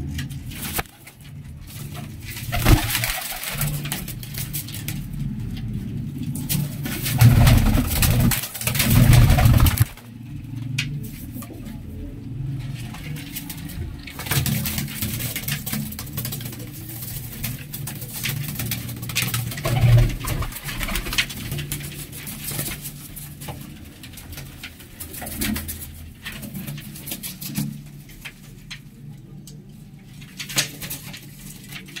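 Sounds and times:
scratchy clicks and rustles: 0.0 - 11.9, 12.5 - 32.0
pigeons cooing: 2.1 - 14.6, 15.4 - 22.2.

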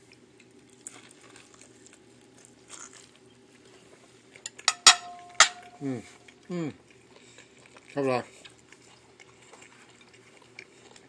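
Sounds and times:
metal spoon clinking ceramic bowl: 4.5 - 5.9.

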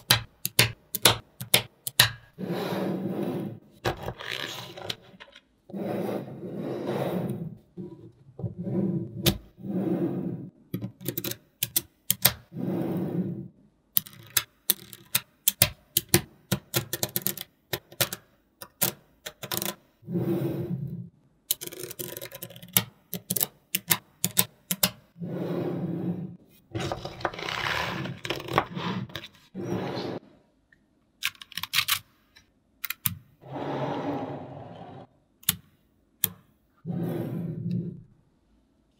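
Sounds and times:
balls scraping and rubbing: 2.3 - 10.6, 12.5 - 13.5, 19.5 - 22.3, 25.1 - 30.4, 33.4 - 35.2, 36.8 - 38.1
magnetic balls clicking together: 14.0 - 19.8, 21.5 - 25.0.

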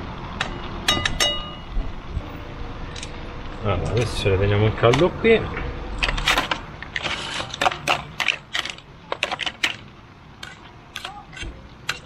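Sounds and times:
camp cookware clattering: 0.4 - 1.7.

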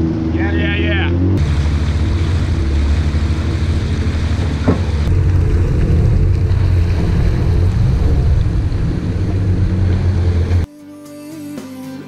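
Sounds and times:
jet ski engine drone: 0.0 - 10.7
water rushing past hull: 1.4 - 10.7.

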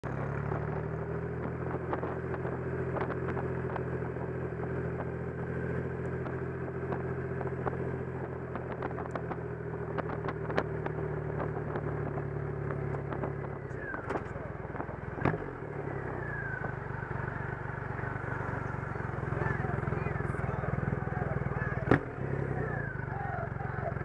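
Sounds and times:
motorcycle engine cruising: 0.0 - 24.0.

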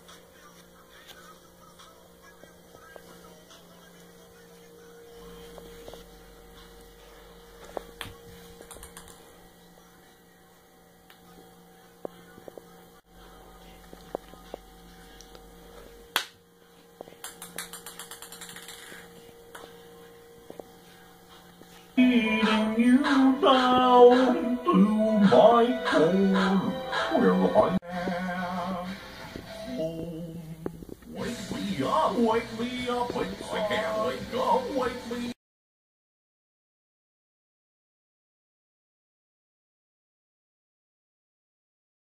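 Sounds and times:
low electrical hum: 0.0 - 26.7.

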